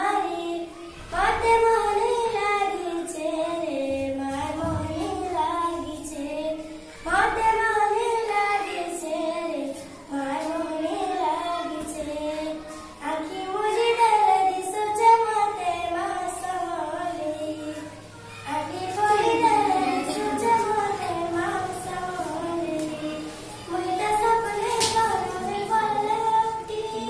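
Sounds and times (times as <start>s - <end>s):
girl singing: 0.0s - 27.0s.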